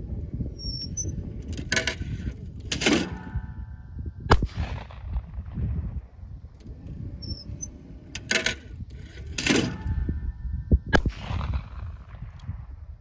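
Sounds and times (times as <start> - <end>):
wind buffeting microphone: 0.0 - 13.0
shotgun shot with echo: 4.3 - 5.6, 10.9 - 12.3.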